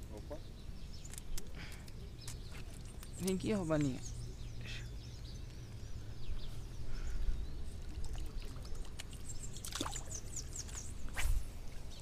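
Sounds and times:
water trickling and splashing: 0:01.0 - 0:04.7, 0:06.5 - 0:12.0
fish splashing: 0:07.9 - 0:10.3.

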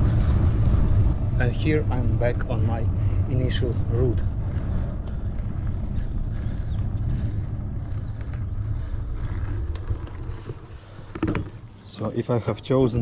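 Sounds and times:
wind rumble on microphone: 0:00.0 - 0:11.6
bike tyre noise: 0:00.0 - 0:13.0.

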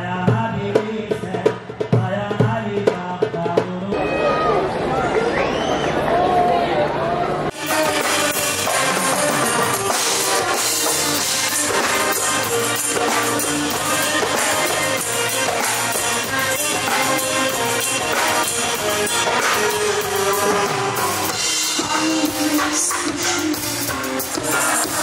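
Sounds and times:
drums keeping a steady beat: 0:00.0 - 0:04.5, 0:07.5 - 0:25.0
live band music: 0:07.5 - 0:25.0.

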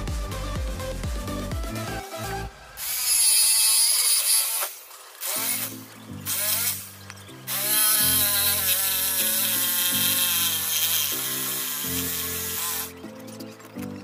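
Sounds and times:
background music with bass line: 0:00.0 - 0:02.7
electric jigsaw running: 0:02.8 - 0:06.9, 0:07.5 - 0:13.0.

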